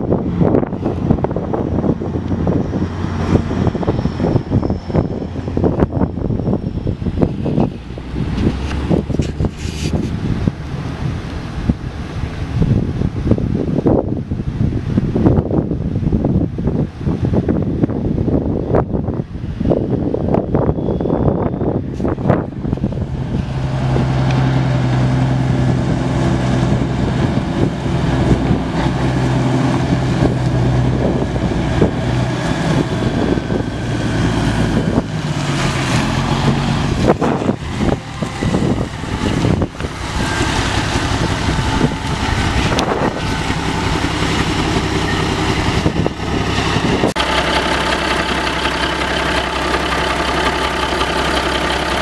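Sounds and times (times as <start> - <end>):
diesel engine idling: 21.6 - 52.0.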